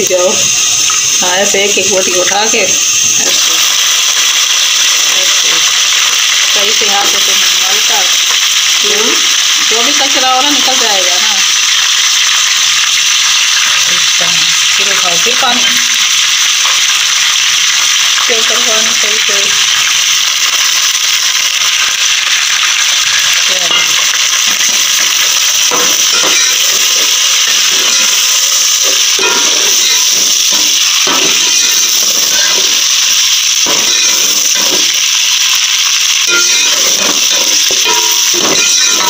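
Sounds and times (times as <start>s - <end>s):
chicken sizzling in hot oil: 0.0s - 39.0s
metal ladle scraping pot: 24.6s - 33.0s, 36.2s - 39.0s.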